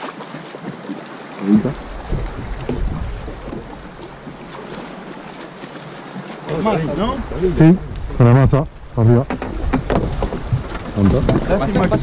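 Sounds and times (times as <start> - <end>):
wind rumbling on microphone: 1.6 - 5.0, 6.6 - 12.0.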